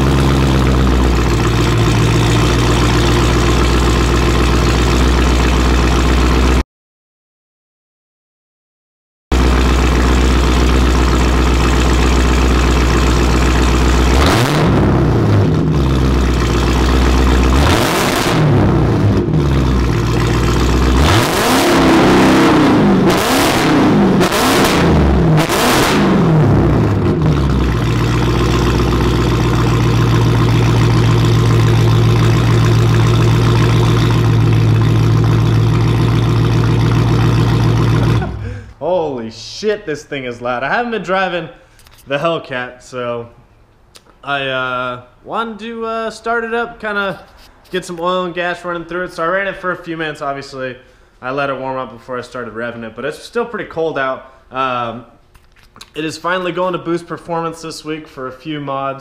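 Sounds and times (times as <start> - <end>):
loud car engine idling and revving: 0.0 - 6.6, 9.3 - 38.7.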